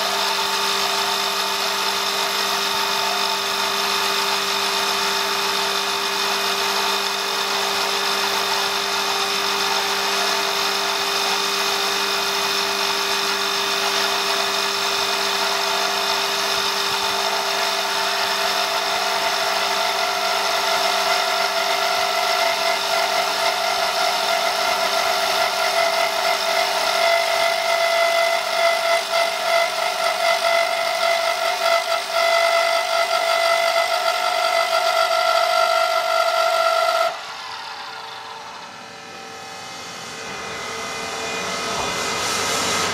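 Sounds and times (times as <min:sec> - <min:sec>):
cutter shaving wood: 0:00.0 - 0:38.8
wood lathe machine whine: 0:00.0 - 0:42.9
higher machine whine: 0:37.0 - 0:42.9.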